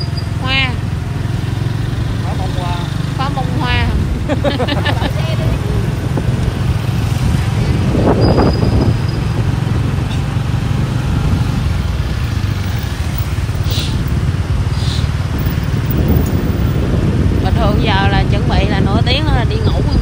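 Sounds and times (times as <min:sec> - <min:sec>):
motorbike engine rumble: 0:00.0 - 0:20.0
wind on microphone: 0:03.2 - 0:20.0
short hisses: 0:13.6 - 0:14.1, 0:14.7 - 0:15.2.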